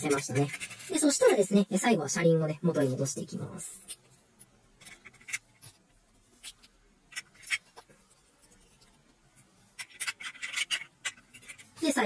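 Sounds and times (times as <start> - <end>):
plastic toy parts clicking: 4.8 - 5.5, 6.4 - 7.7, 9.8 - 11.8.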